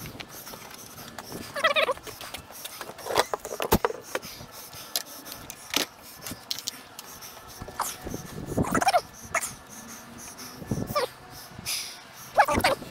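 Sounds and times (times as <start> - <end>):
knocks and clicks of wood and tools: 2.2 - 4.3.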